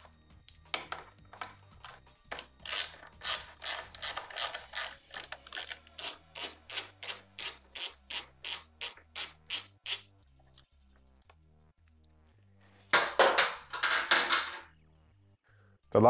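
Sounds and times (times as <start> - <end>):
faint background music: 0.0 - 16.0
socket ratchet rasping: 2.4 - 10.1.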